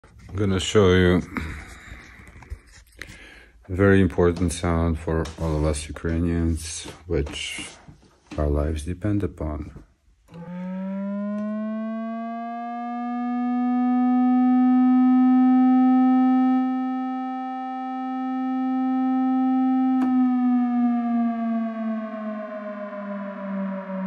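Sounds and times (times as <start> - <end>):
synthesizer siren tone: 10.3 - 24.0.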